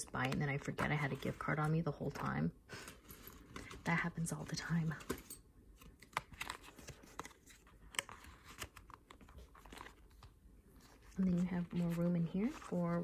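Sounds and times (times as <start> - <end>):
plastic cards shifting: 5.8 - 13.0.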